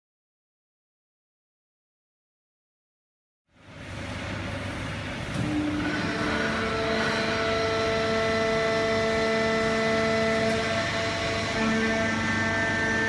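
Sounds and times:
baler machine drone: 3.5 - 13.0
whining tones: 5.3 - 13.0.

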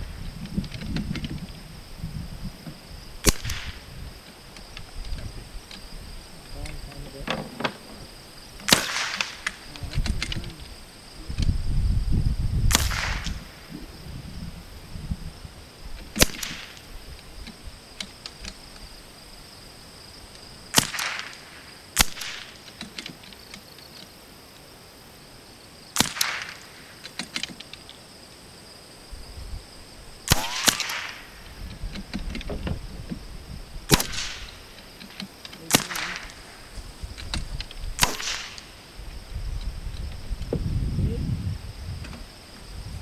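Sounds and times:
rifle shot cracks: 3.2 - 3.8, 8.6 - 9.7, 12.7 - 13.7, 16.2 - 16.9, 20.7 - 22.6, 26.0 - 27.0, 30.2 - 31.4, 33.9 - 34.6, 35.7 - 36.6, 38.0 - 38.8.

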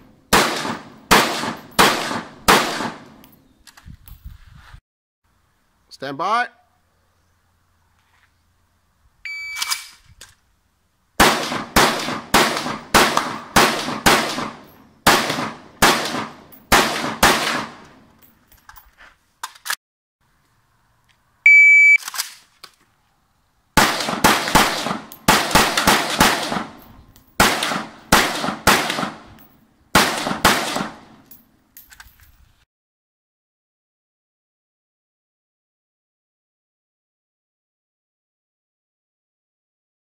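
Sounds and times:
rifle shots in rapid strings: 0.3 - 3.1, 11.2 - 17.8, 23.8 - 26.8, 27.4 - 29.2, 30.0 - 31.1
shot timer beep: 9.3 - 9.7, 21.5 - 22.0.

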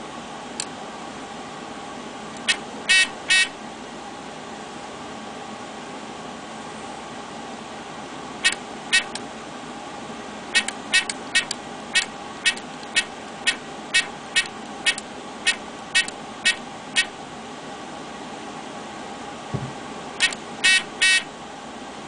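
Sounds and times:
keypad beeps: 20.2 - 21.3.

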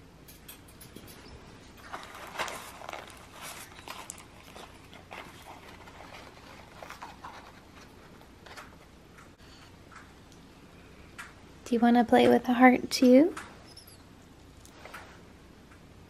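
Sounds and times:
parrots chewing paper and cardboard: 0.6 - 10.4
cardboard crackle: 1.8 - 8.9.

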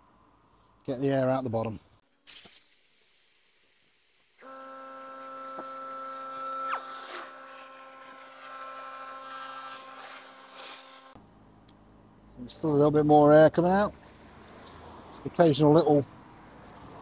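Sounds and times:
high squeak falling in pitch: 4.4 - 7.6.

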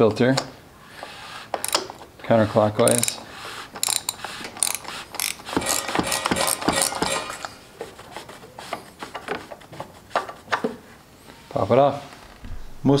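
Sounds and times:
small metallic clicks and knocks: 1.6 - 2.1.

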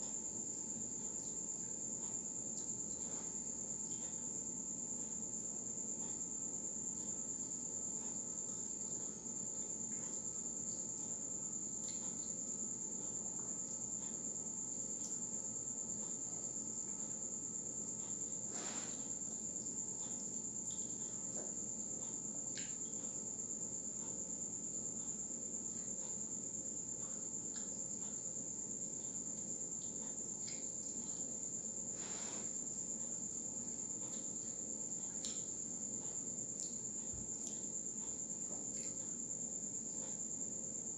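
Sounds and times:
crickets trilling: 0.0 - 40.9
crunchy food being chewed: 28.9 - 40.2.

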